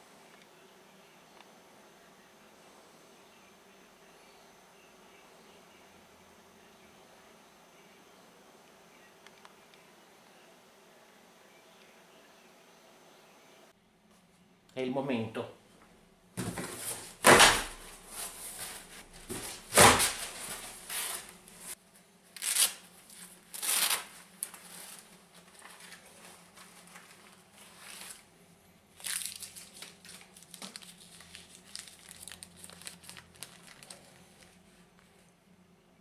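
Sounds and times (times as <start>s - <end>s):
cardboard flaps rasping: 16.4s - 21.3s
packing tape tearing: 16.4s - 21.3s, 22.3s - 26.0s, 29.0s - 34.6s
paper crinkling: 16.4s - 28.3s, 29.0s - 35.3s.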